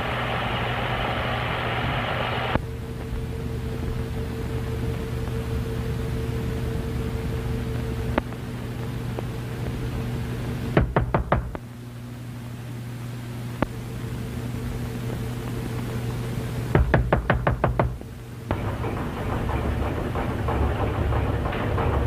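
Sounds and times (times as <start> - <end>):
rapid knocking: 10.8 - 11.6, 16.8 - 22.0
soundtrack hum: 16.5 - 22.0.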